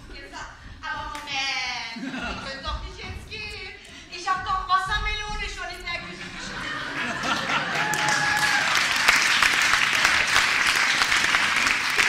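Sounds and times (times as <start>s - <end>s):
audience applause: 6.6s - 12.0s.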